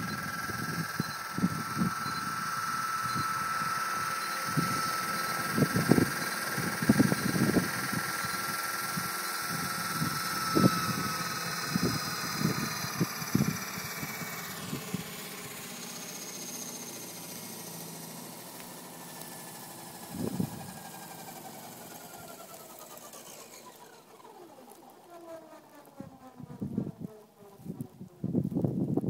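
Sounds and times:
rc helicopter winding down: 0.0 - 29.0.

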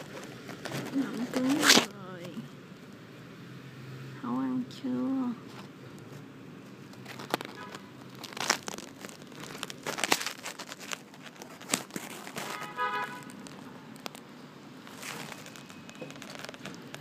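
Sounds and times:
phone handling rustling: 6.8 - 14.3.

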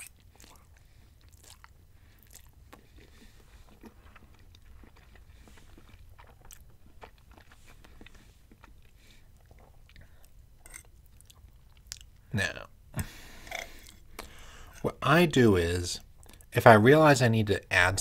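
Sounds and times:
person chewing wetly: 0.0 - 12.2.

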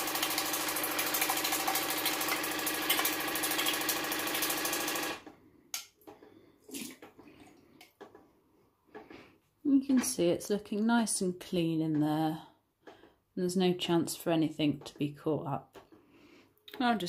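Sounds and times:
water flosser pump buzzing: 0.0 - 5.3.

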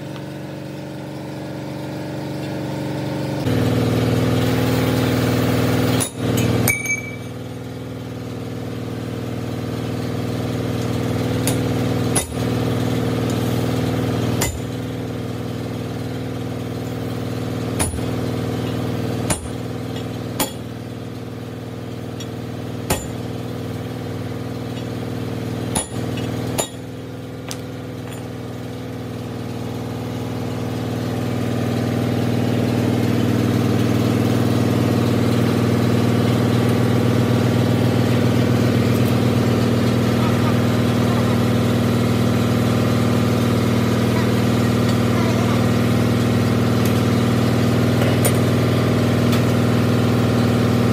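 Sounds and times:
workshop machinery hum: 0.0 - 50.9
metal clinks and knocks: 6.0 - 7.4, 25.8 - 28.4.

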